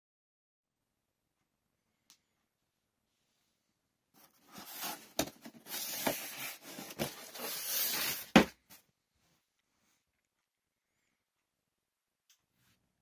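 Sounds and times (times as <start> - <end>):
cardboard and packing tape rustling: 4.2 - 8.8.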